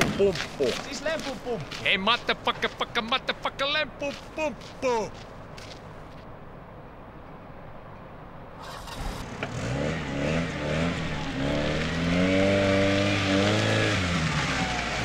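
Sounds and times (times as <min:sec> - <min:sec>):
car engine revving: 0:08.6 - 0:15.0.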